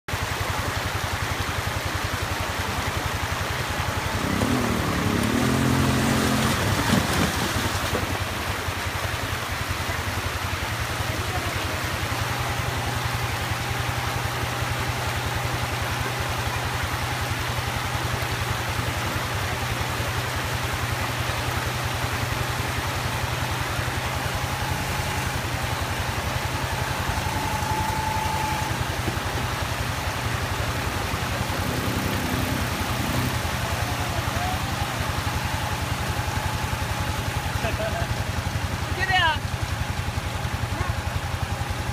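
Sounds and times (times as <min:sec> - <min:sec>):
atv engine running: 0:00.1 - 0:41.9
rushing stream water: 0:00.1 - 0:41.9.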